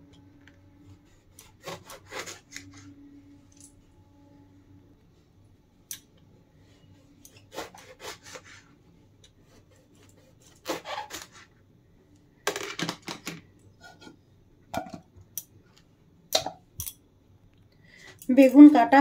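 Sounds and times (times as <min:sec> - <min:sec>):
knife slicing on cutting board: 0:07.3 - 0:08.6.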